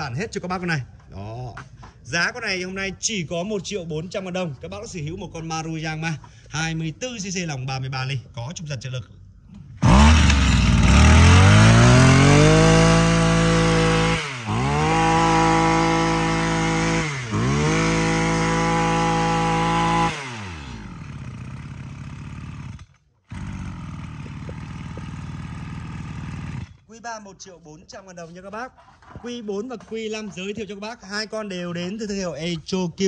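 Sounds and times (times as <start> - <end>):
brush cutter engine revving: 9.8 - 26.9.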